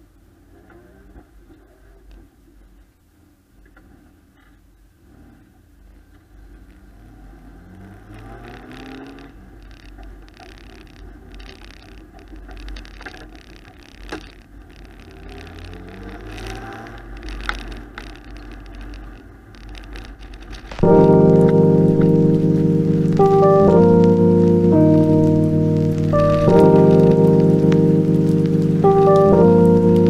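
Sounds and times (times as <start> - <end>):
car engine accelerating: 5.0 - 10.0, 15.0 - 18.4, 20.8 - 30.0.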